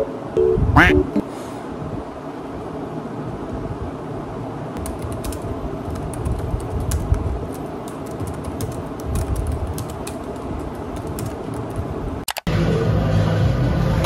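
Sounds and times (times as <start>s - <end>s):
low background noise: 0.0s - 14.0s
typing on computer keyboard: 4.8s - 12.5s.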